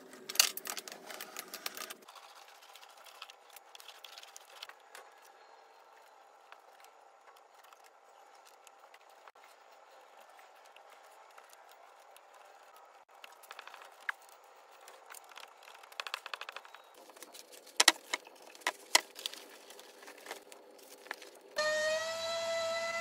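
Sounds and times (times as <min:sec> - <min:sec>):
vacuum pump whine: 0:21.5 - 0:23.0.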